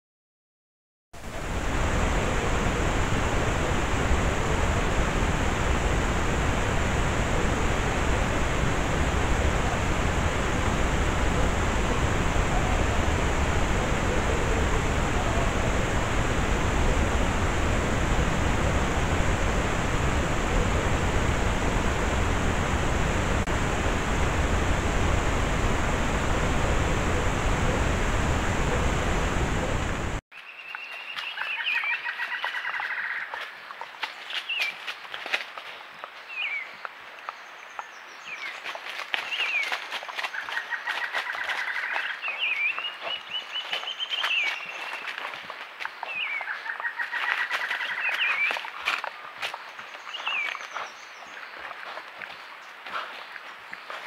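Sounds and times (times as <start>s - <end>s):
steady hiss: 1.2s - 30.2s
low rumble: 1.3s - 30.2s.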